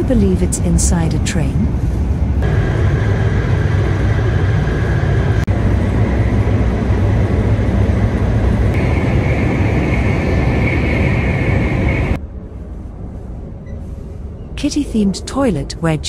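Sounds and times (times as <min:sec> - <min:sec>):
train car rumble and hiss: 0:00.0 - 0:16.0
faint high whine: 0:08.7 - 0:12.2.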